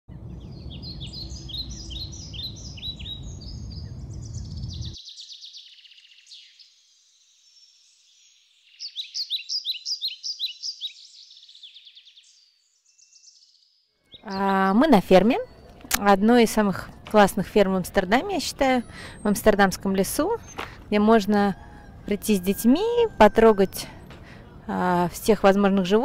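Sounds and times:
low rumbling noise: 0.1s - 5.0s, 15.0s - 26.0s
songbirds chirping: 0.1s - 26.0s.

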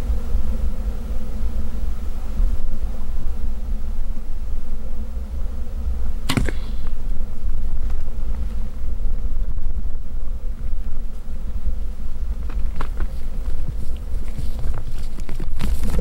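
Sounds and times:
low wind rumble on microphone: 0.0s - 16.0s
arrow release crack: 6.2s - 7.0s
arrow hitting with whop and ring: 6.3s - 6.8s.

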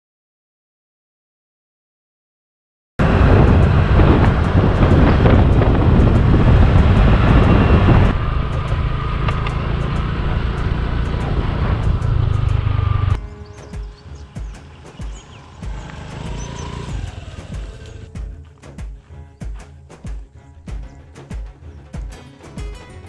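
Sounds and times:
wind buffeting on microphone: 3.0s - 13.2s
motorcycle engine running: 3.0s - 22.2s.

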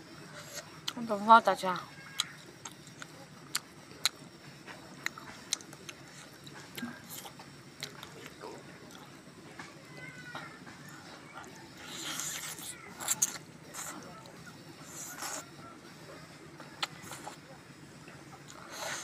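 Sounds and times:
person chewing food: 2.1s - 4.2s, 5.0s - 9.2s, 11.3s - 15.6s, 16.7s - 17.4s.

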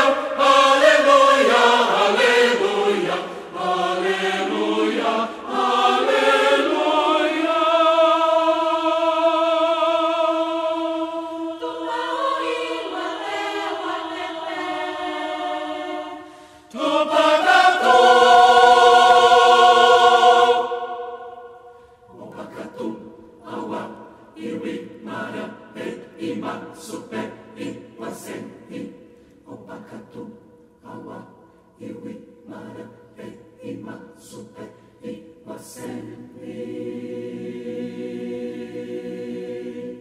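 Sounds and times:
choir singing: 0.0s - 40.0s.

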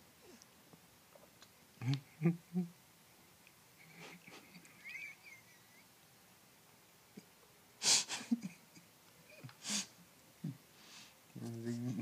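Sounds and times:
mouth clicks: 1.4s - 2.1s.

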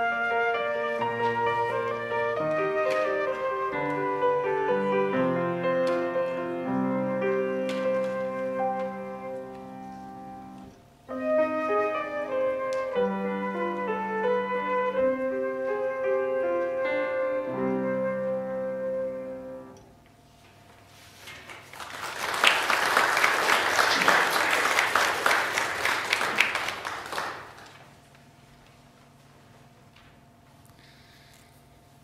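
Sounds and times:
flute and piano: 0.0s - 19.8s
audience applauding: 21.4s - 27.9s.

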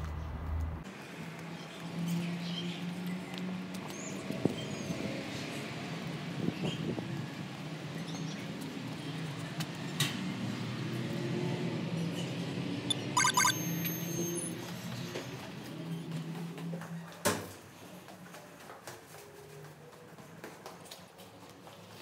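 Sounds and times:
door intercom electronic beeps: 12.9s - 14.6s.

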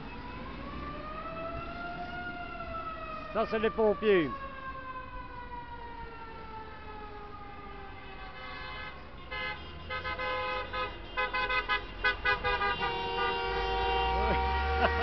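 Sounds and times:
vehicle horns honking: 8.2s - 15.0s
long sliding horn note: 12.8s - 15.0s.

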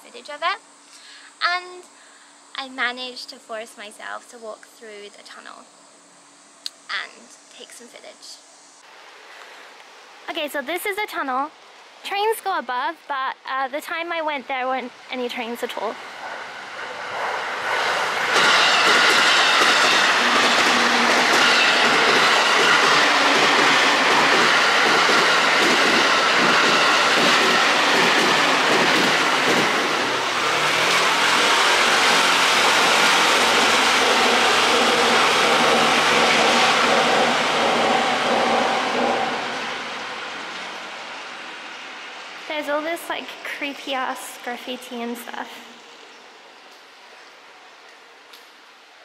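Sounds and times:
train wheels rumbling overhead: 14.8s - 46.0s.

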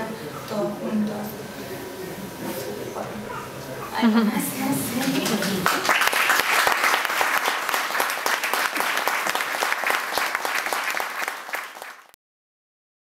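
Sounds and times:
audience applauding: 5.0s - 12.2s.

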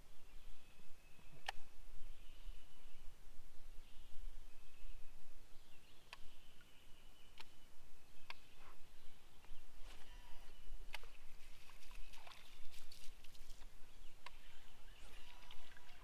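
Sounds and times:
small ticks and splashes: 10.9s - 13.7s, 15.1s - 16.0s
light water sounds: 10.9s - 16.0s.

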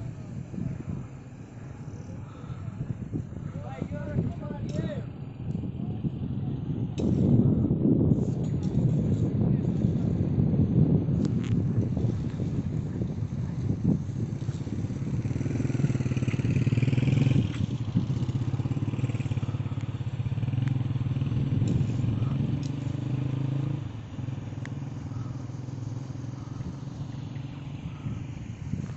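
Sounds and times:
engine idling: 23.8s - 28.9s.

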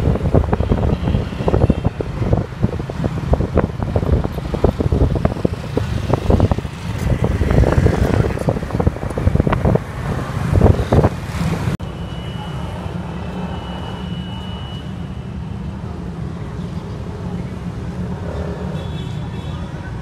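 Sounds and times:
wind buffeting microphone: 0.0s - 11.8s
passing road traffic: 0.0s - 20.0s.

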